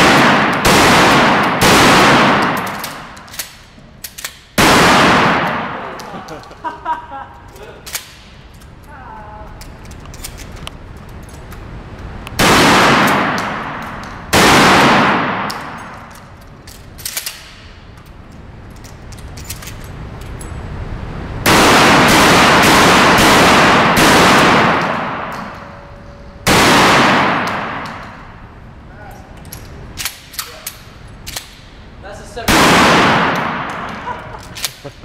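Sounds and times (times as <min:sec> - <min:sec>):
echoing gunshots: 0:00.0 - 0:03.6, 0:04.5 - 0:06.0, 0:12.4 - 0:16.2, 0:21.4 - 0:25.8, 0:26.4 - 0:28.6, 0:32.4 - 0:34.3.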